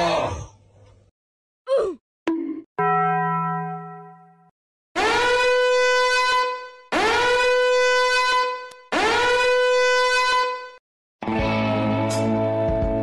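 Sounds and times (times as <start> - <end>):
horn-like blown tone: 5.0 - 10.8.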